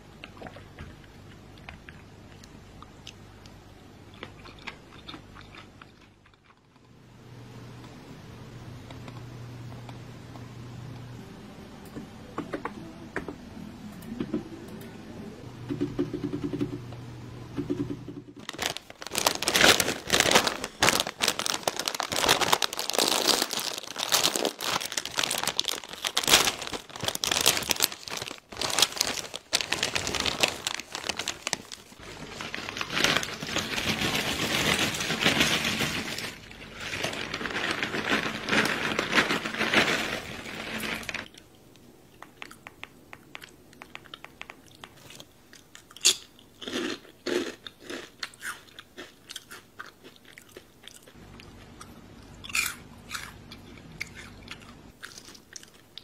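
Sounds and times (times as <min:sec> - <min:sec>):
plastic snack bag crinkling and tearing: 0:18.4 - 0:41.4, 0:46.0 - 0:51.2, 0:54.0 - 0:56.0.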